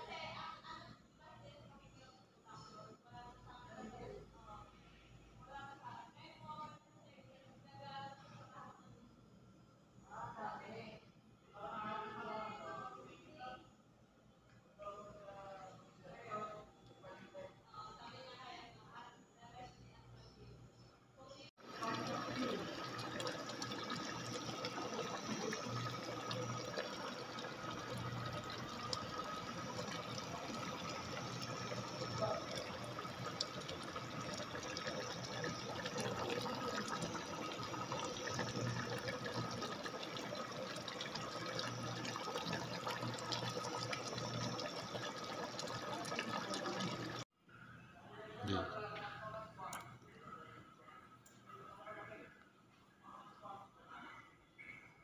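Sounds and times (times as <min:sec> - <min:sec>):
faint steady hum: 0:00.0 - 0:47.9
pot bubbling and crackling: 0:21.6 - 0:47.2.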